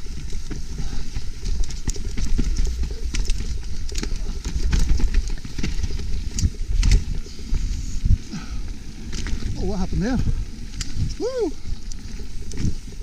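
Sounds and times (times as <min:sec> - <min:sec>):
bike chain and frame rattling: 0:00.0 - 0:13.0
wind buffeting microphone: 0:05.9 - 0:13.0.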